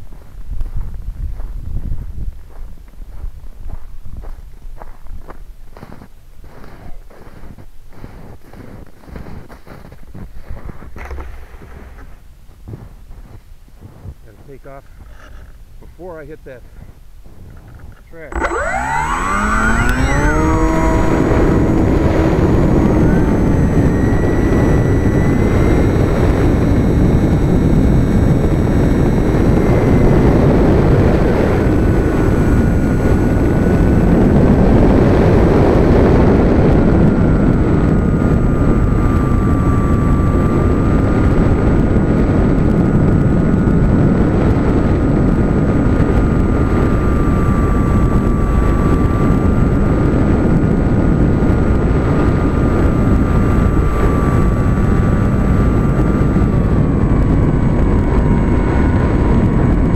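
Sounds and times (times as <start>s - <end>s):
wind rush over microphone: 0.0s - 59.9s
model plane motor whine: 17.5s - 59.9s.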